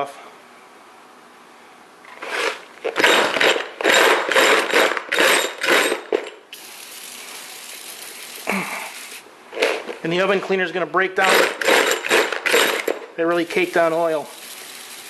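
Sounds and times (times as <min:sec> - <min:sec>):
aerosol can mixing ball rattling: 0:02.2 - 0:09.9, 0:11.2 - 0:15.0
aerosol spray hiss: 0:06.6 - 0:09.3.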